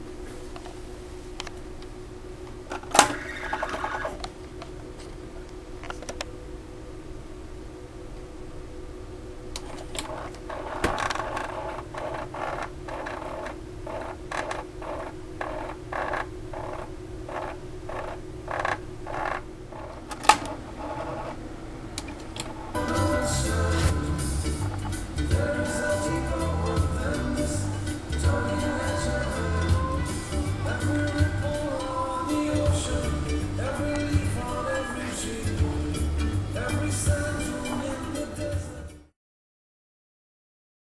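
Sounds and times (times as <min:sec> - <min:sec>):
faint steady hum: 0:00.0 - 0:39.1
tape transport clicks and rattles: 0:09.5 - 0:21.4, 0:24.5 - 0:25.7.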